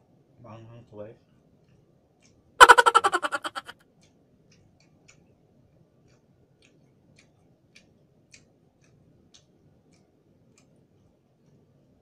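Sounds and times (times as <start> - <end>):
eating by hand clicks: 6.1 - 10.8.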